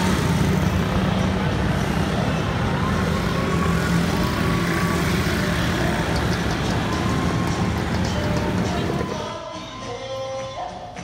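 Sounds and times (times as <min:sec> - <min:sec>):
city road traffic: 0:00.0 - 0:11.0.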